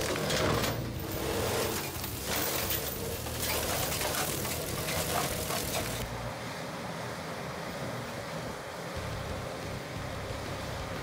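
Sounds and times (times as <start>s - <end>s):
crackling debris: 0.0s - 6.1s
mulcher shredding brush: 0.0s - 6.2s
skid steer clearing brush: 0.0s - 11.0s.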